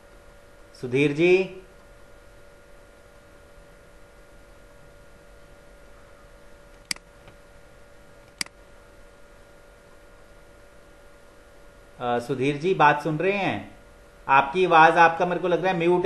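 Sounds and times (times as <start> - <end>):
low electrical hum: 0.0 - 16.0
computer mouse clicks: 8.3 - 8.6.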